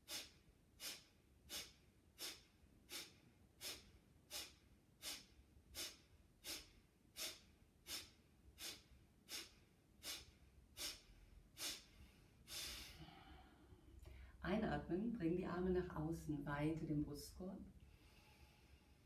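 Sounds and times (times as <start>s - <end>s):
woman's forceful nasal exhalations: 0.0s - 14.3s.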